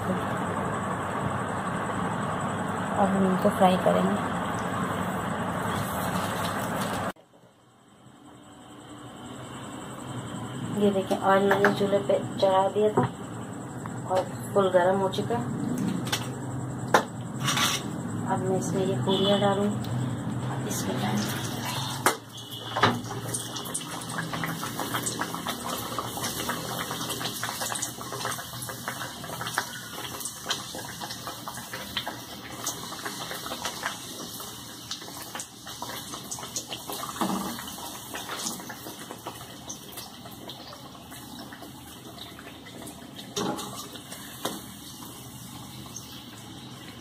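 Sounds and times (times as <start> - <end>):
food sizzling in hot oil: 1.4 - 7.2, 17.3 - 47.0.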